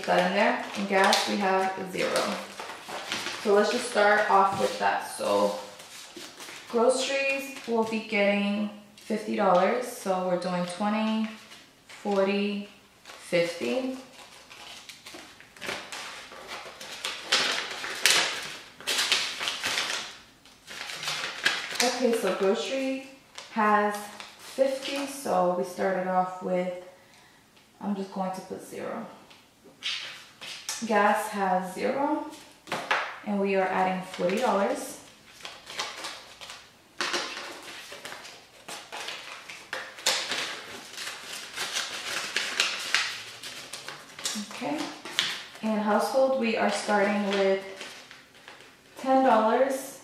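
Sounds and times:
paper rustling and crinkling: 0.0 - 8.2, 13.0 - 25.2, 33.8 - 45.7, 46.6 - 49.4.

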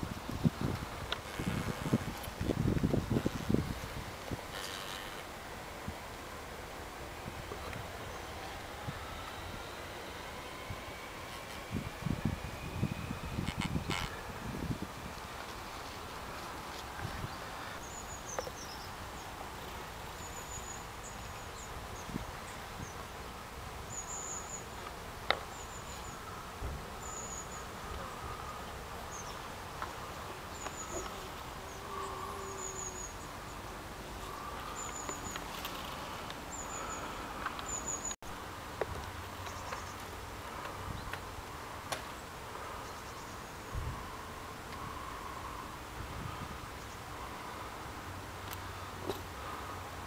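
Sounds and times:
bees buzzing: 0.2 - 5.7, 6.3 - 18.4, 19.6 - 38.2.

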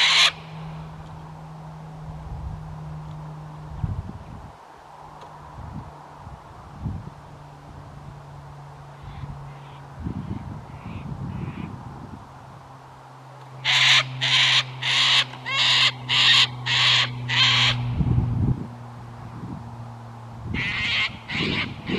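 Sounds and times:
cockatoo screeching: 0.0 - 0.4, 13.6 - 17.8, 20.6 - 21.9.

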